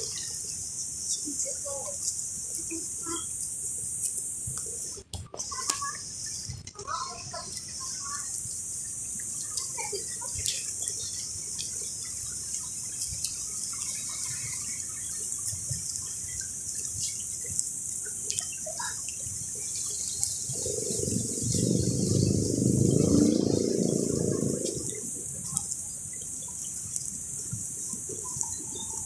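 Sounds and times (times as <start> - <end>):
river flowing: 0.0 - 29.0
low rumble: 20.5 - 25.4.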